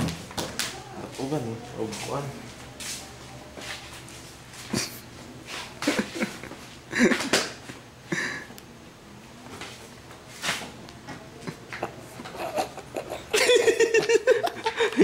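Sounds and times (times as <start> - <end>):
man laughing: 5.8 - 7.4, 11.5 - 15.0.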